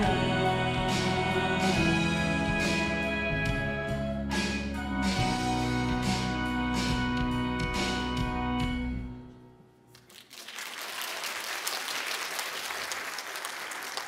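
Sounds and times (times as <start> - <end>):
audience applause: 10.0 - 14.0.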